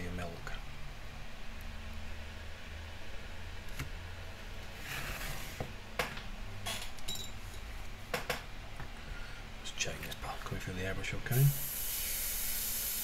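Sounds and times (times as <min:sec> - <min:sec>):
low steady hum: 0:00.0 - 0:12.6
metal clinks and taps: 0:06.9 - 0:08.4.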